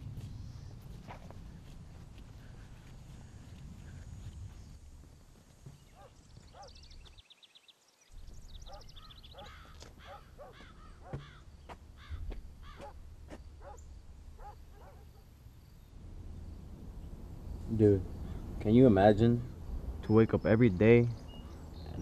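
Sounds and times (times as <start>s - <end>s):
birds calling: 5.4s - 22.0s
low background rumble: 10.2s - 22.0s.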